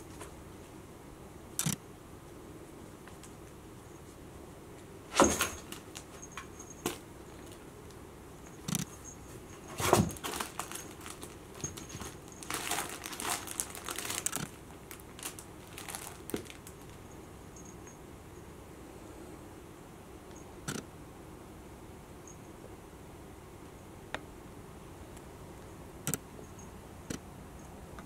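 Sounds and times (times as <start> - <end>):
crinkly fabric rustling: 9.0 - 17.2.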